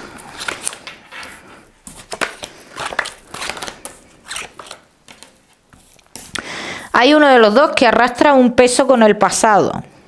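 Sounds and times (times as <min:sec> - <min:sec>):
cards being shuffled: 0:00.1 - 0:06.2.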